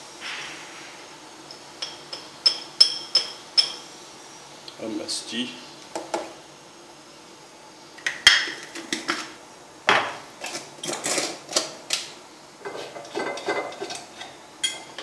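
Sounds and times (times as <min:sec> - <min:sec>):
kitchen utensils clinking: 0:01.8 - 0:03.8, 0:08.0 - 0:11.9, 0:12.6 - 0:15.0.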